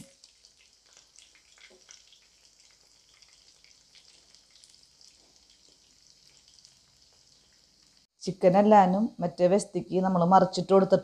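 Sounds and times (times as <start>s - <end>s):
small crackles of oil: 0.0s - 8.1s
chicken frying in oil: 0.0s - 8.2s.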